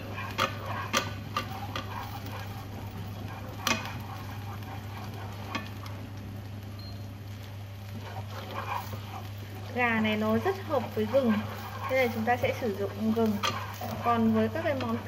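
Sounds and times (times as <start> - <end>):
chopsticks tapping a pan: 0.0 - 2.4, 3.2 - 4.4, 5.4 - 5.9, 9.9 - 15.0
ginger sizzling in hot oil: 0.0 - 15.0
steady low hum: 0.0 - 15.0.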